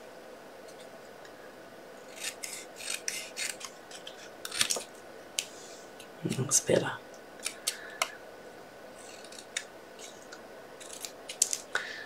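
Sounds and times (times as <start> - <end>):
rasping scraping on card: 2.0 - 4.8, 9.0 - 10.2, 10.8 - 11.5.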